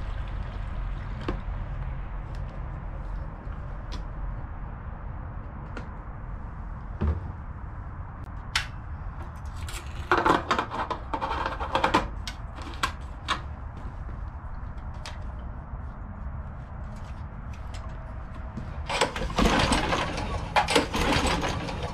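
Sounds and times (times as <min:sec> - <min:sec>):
clicks and rattles of engine controls: 0:18.8 - 0:21.9.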